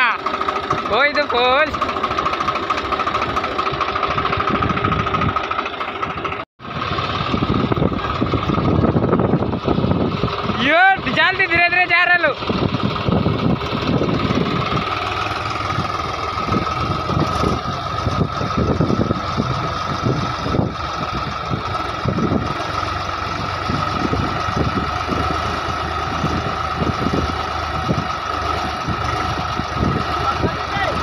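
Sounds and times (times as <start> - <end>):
tractor diesel engine under load: 0.0 - 31.0.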